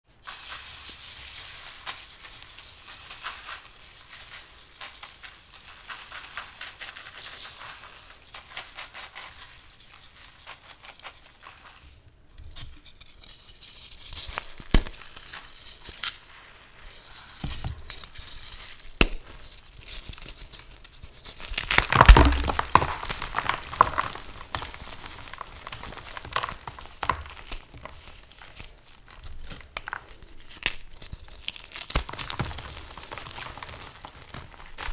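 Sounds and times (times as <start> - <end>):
chalk crackling and crunching: 0.2 - 12.0, 12.6 - 34.9.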